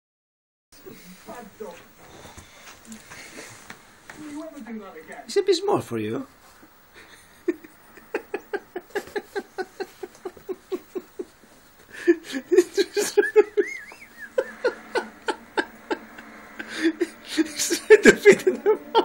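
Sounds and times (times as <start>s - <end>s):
person laughing: 7.0s - 19.0s.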